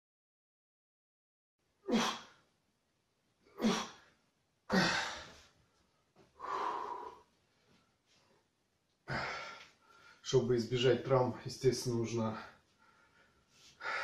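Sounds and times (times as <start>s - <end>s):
man exhaling forcefully: 4.7s - 5.3s.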